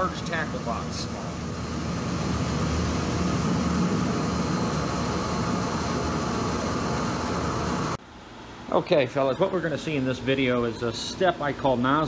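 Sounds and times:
burner flame rushing: 0.0 - 8.0.

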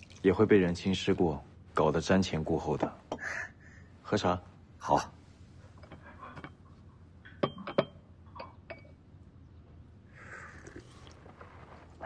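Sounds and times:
porcelain teacups clinking: 5.8 - 9.1.

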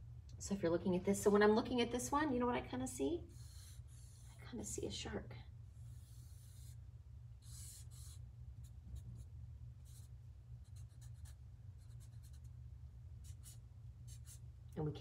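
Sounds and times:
marker scratching on paper: 3.3 - 4.4, 5.8 - 6.8, 7.4 - 12.5, 13.2 - 14.4.

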